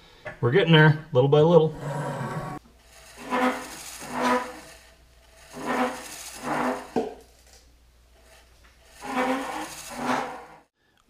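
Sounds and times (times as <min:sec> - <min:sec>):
cutter bit scraping metal: 0:01.8 - 0:07.2, 0:08.2 - 0:10.7.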